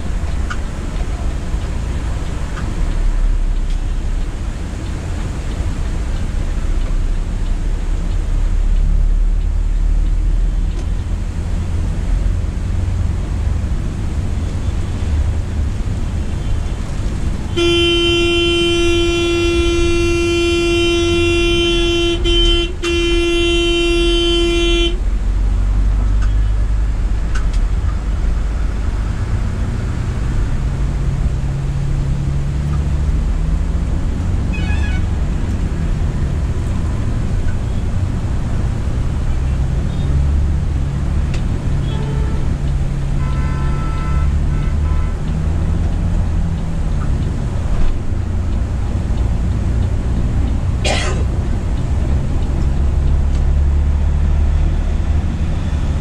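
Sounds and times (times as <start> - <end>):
bus diesel engine: 0.0 - 56.0.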